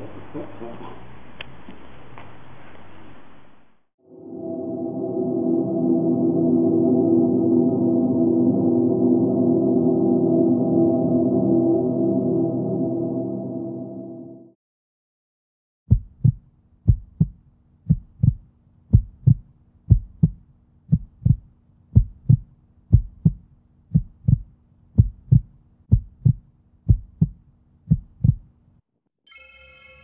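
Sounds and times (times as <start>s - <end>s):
heartbeat thumps: 15.9s - 28.5s.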